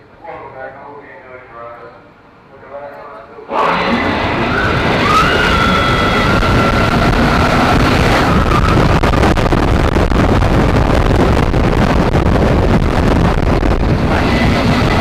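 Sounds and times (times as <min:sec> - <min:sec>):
roller coaster rumbling on track: 0:03.2 - 0:15.0
wind rushing over microphone: 0:03.6 - 0:15.0.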